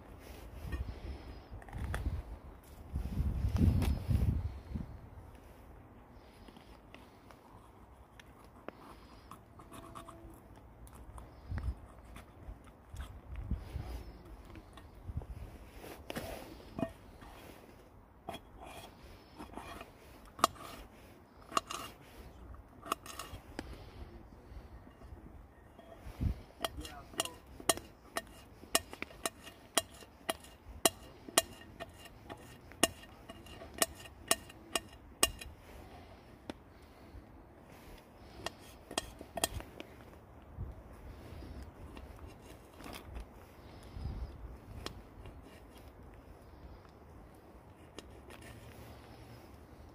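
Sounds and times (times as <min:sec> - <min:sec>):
knife clicking on metal pot: 0:26.6 - 0:35.5.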